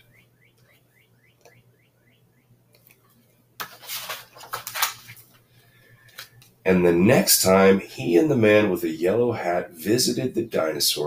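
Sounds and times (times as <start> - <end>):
book pages rustling: 3.6 - 5.4.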